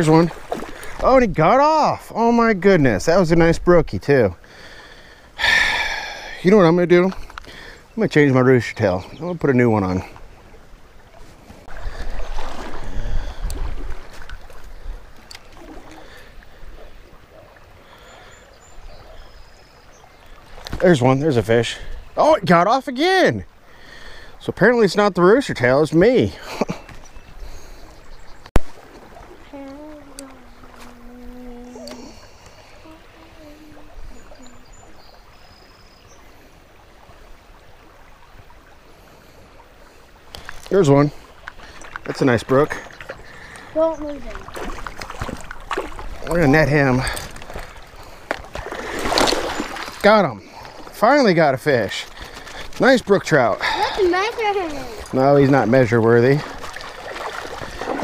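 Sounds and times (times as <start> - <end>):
stream flowing: 0.0 - 58.0
faint high chirps: 29.5 - 35.9.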